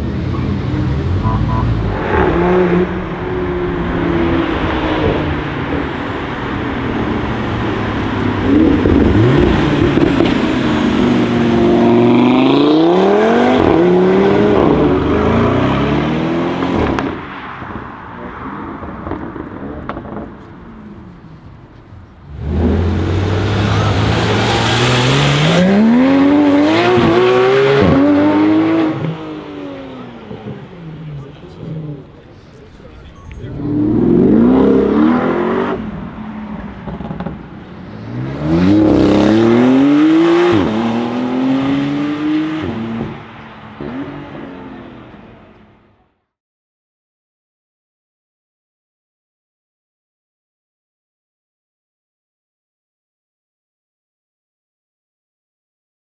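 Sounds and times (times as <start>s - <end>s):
car engine revving and accelerating: 0.0s - 17.8s, 22.3s - 32.2s, 33.4s - 45.5s.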